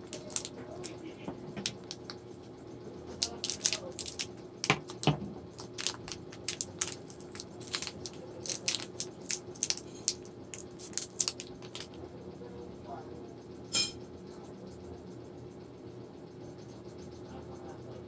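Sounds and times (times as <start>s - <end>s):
candy wrapper crinkling: 0.0s - 1.0s, 1.6s - 2.1s, 3.2s - 12.0s.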